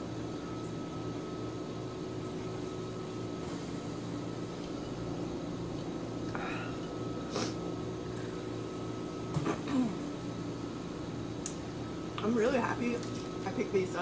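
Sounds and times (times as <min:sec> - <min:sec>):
mechanical room hum: 0:00.0 - 0:14.0.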